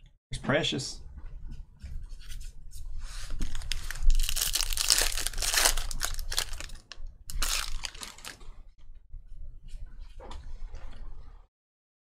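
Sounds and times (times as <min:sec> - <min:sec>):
foil wrapper tearing and crinkling: 0:03.4 - 0:08.4.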